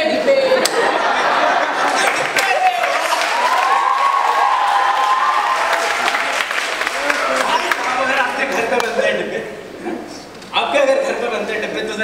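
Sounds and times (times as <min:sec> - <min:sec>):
audience applauding and cheering: 0:01.7 - 0:08.9
person whooping: 0:02.4 - 0:05.8.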